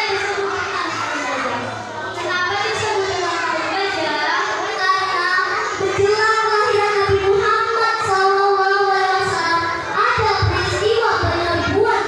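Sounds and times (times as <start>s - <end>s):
girl singing into microphone: 5.2s - 12.0s.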